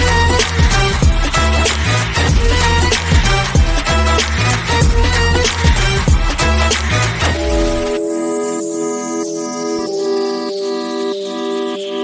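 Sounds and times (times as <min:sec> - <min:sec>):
held synth chords: 0:00.0 - 0:12.0
high tone gliding downward: 0:07.2 - 0:12.0.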